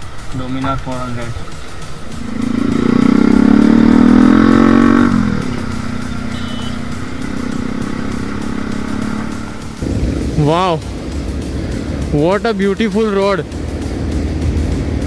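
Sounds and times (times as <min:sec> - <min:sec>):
motorcycle engine pulling away: 0:01.6 - 0:10.4.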